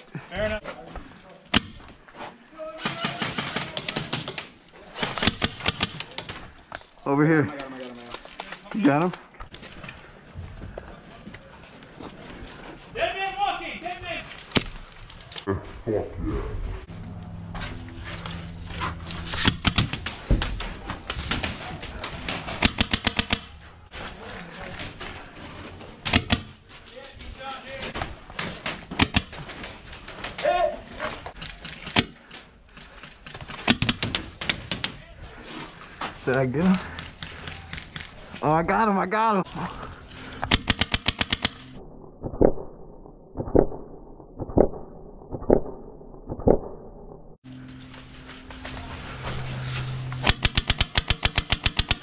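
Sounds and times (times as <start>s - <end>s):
airsoft guns firing: 22.2s - 23.6s, 40.4s - 41.8s, 50.2s - 52.0s
airsoft rifle firing burst: 50.2s - 52.0s.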